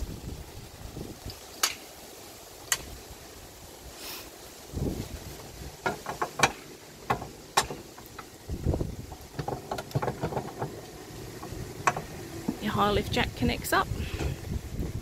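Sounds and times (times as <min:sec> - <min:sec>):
metal jack clanking and clicking: 0:05.8 - 0:08.3.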